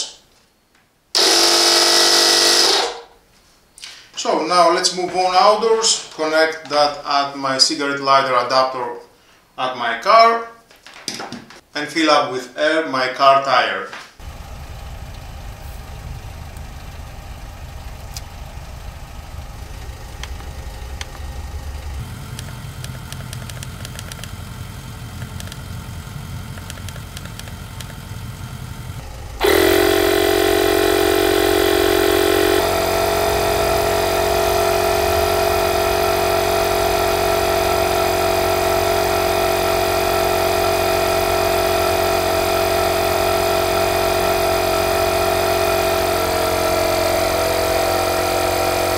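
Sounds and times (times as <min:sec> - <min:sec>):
tyre compressor humming: 0:01.2 - 0:03.1, 0:14.2 - 0:48.9
low rumble: 0:14.2 - 0:27.4
small clicks: 0:21.9 - 0:24.4, 0:25.2 - 0:25.7, 0:26.5 - 0:28.0.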